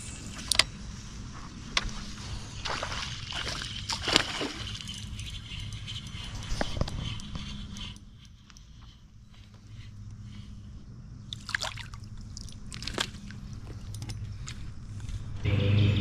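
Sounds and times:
steady low hum: 0:00.0 - 0:16.0
water lapping against boat: 0:02.6 - 0:06.7.

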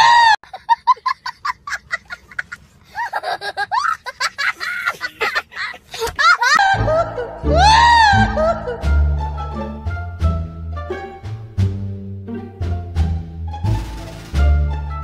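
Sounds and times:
young boy laughing: 0:00.4 - 0:09.0.

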